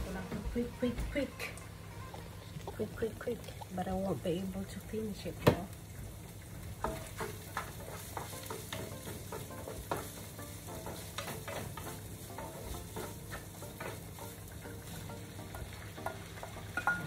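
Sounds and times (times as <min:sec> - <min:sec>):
food sizzling in a frying pan: 0:00.0 - 0:17.0
utensil scraping and tapping pan: 0:06.8 - 0:14.5.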